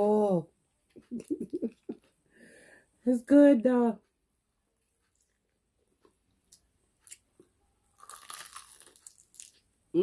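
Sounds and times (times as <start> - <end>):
chewing crispy fried chicken: 5.0 - 9.7.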